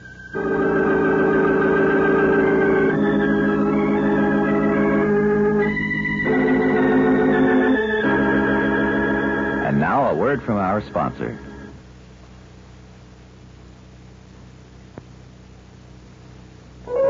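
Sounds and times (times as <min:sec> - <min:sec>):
organ playing held chords: 0:00.0 - 0:11.8.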